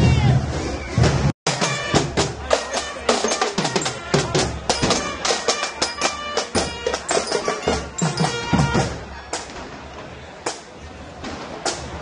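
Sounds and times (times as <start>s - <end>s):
marching snare drums: 0.8s - 12.0s
held high notes: 1.5s - 9.0s.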